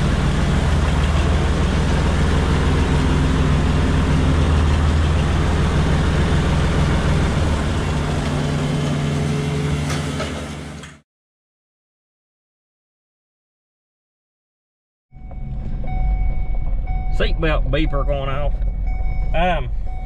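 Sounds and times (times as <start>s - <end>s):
tractor engine running: 0.0s - 11.0s, 15.2s - 20.0s.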